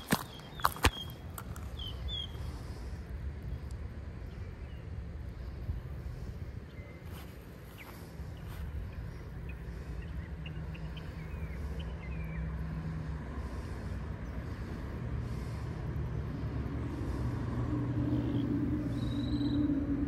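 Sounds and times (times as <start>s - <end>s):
faint bird chirps: 0.0s - 2.5s, 18.1s - 19.8s
low engine drone: 0.0s - 20.0s.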